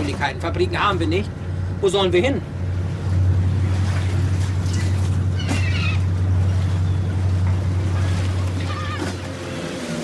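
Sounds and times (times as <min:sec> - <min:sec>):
boat engine droning: 0:00.0 - 0:10.0
gulls calling: 0:04.6 - 0:10.0.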